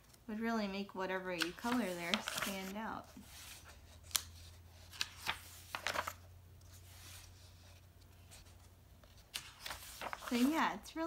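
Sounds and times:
paper pages rustling: 0:01.4 - 0:10.7
pages flicking: 0:09.3 - 0:10.5.

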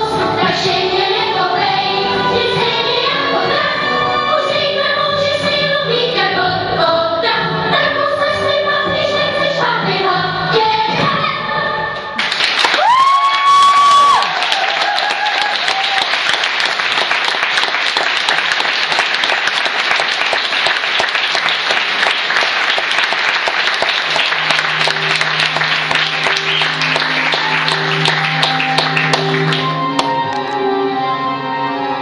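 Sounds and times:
choir singing: 0:00.0 - 0:12.0
audience applauding: 0:12.2 - 0:30.6
instrumental music: 0:24.0 - 0:32.0.

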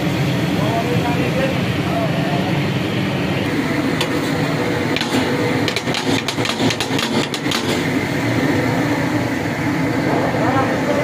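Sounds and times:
low mechanical rumble: 0:00.0 - 0:11.0.

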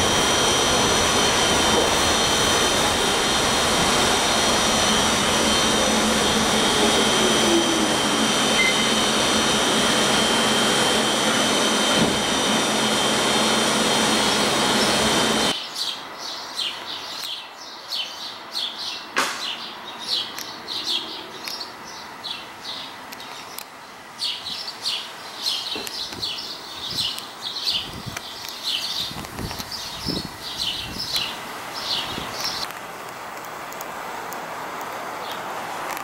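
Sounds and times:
subway car running noise: 0:00.0 - 0:17.2, 0:18.4 - 0:36.0
birds chirping: 0:14.2 - 0:32.7.

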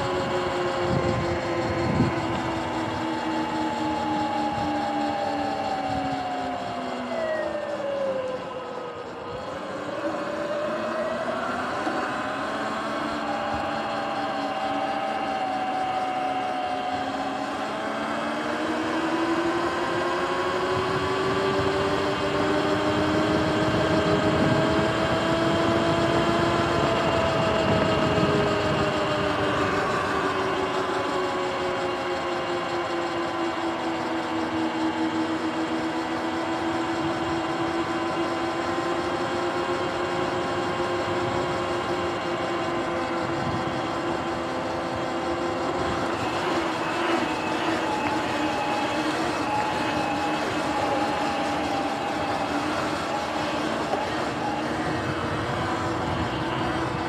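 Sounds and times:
wind rush: 0:00.0 - 0:03.0
electric motor whining: 0:00.0 - 0:57.0.

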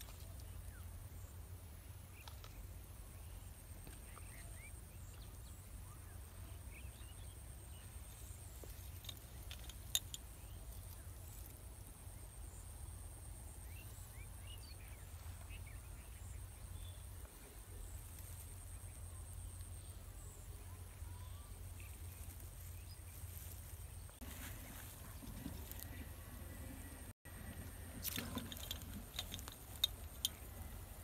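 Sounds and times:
steady low rumble: 0:10.3 - 0:31.0.

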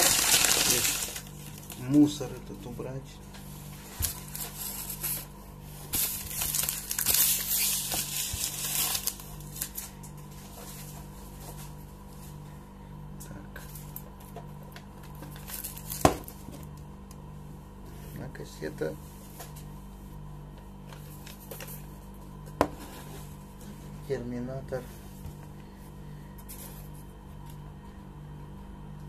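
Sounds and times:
wrapping paper crumpling: 0:00.0 - 0:02.2, 0:04.0 - 0:11.4, 0:15.3 - 0:16.4.

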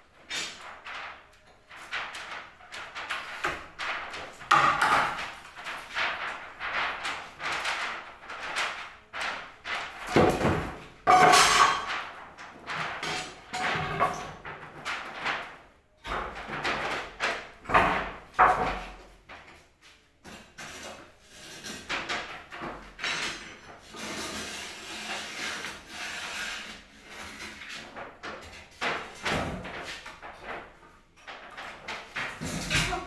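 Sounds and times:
wood scraping and rubbing: 0:23.8 - 0:33.0.

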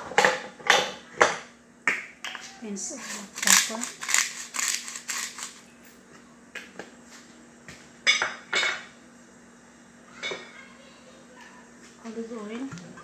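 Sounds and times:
faint steady hum: 0:00.0 - 0:13.0
kitchen items clicking: 0:02.9 - 0:05.6.

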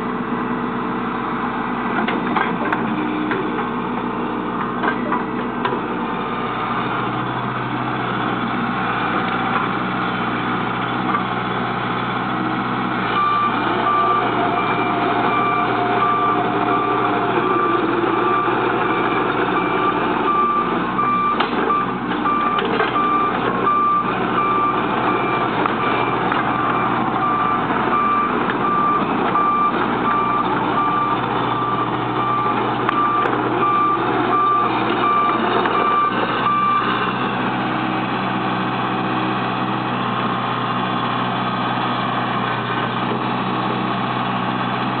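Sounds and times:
diesel engine running: 0:00.0 - 0:45.0
excavator travel alarm beeping: 0:13.1 - 0:37.0.

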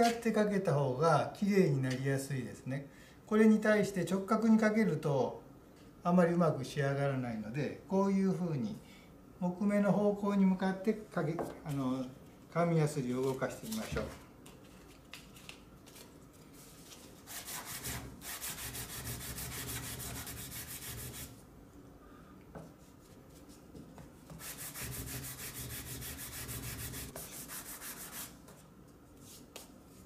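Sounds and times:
sandpaper rubbing on wood: 0:17.3 - 0:21.3, 0:24.4 - 0:28.3.

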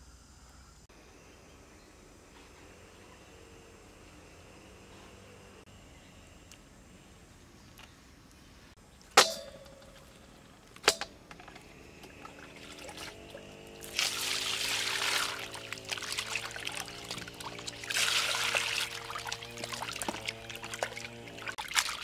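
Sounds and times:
hands washing meat: 0:13.8 - 0:22.0
water pouring into metal bowl: 0:13.8 - 0:22.0.

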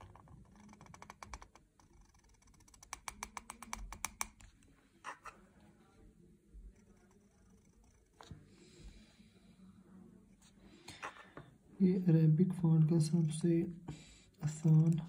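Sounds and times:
pen nib scratching on paper: 0:00.0 - 0:05.4, 0:06.7 - 0:08.5.

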